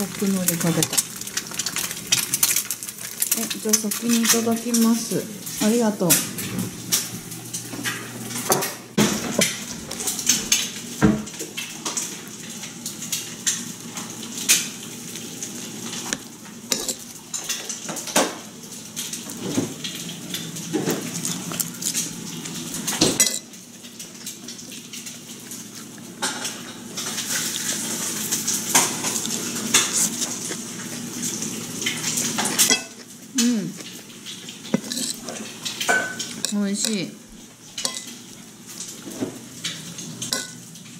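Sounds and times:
metal spoon scraping ceramic plate: 34.8s - 35.2s.

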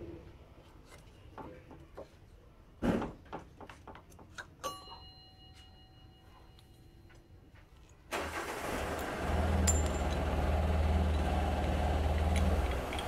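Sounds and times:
ringing clink of metal: 4.6s - 7.1s, 9.6s - 10.2s
engine running: 8.2s - 13.0s.

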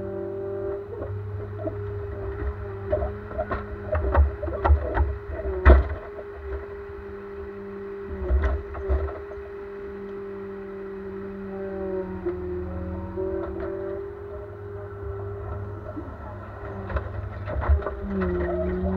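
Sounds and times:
forestry machine running: 0.0s - 18.9s
logs knocking and clunking: 1.6s - 6.3s.

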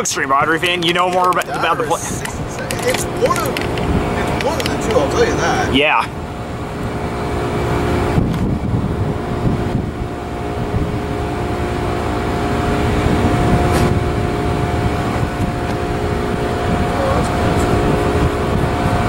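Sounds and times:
jet engines whining: 0.0s - 19.0s.

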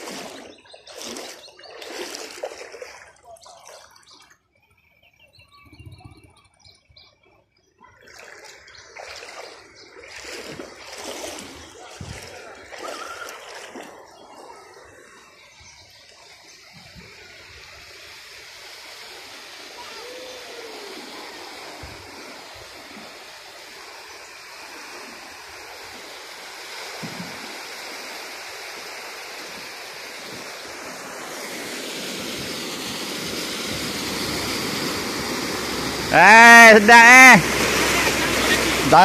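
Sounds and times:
floodwater rushing and splashing: 0.0s - 4.4s, 7.9s - 39.0s.

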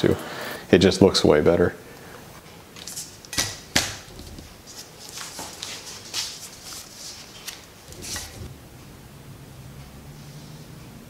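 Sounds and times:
hands tapping and rustling: 2.8s - 8.6s.

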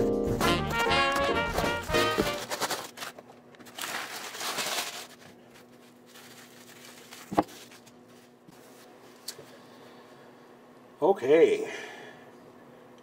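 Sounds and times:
packing paper rustling and crumpling: 0.4s - 9.0s.

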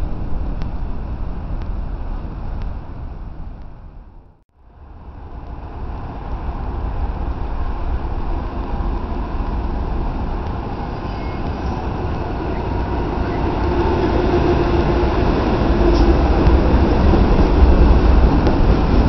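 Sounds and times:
freight train passing: 4.6s - 19.0s.

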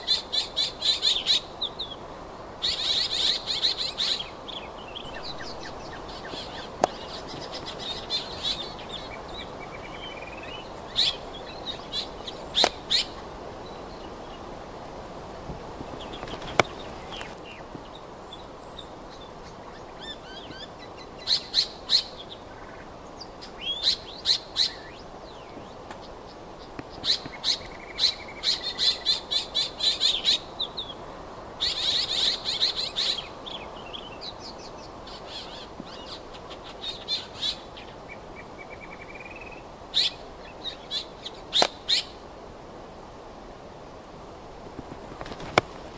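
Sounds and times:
bird calling sharp notes: 5.0s - 9.2s.

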